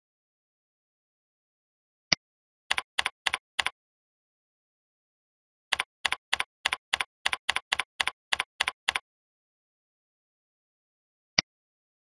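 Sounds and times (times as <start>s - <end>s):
computer keyboard typing: 2.7s - 3.8s, 5.7s - 9.0s.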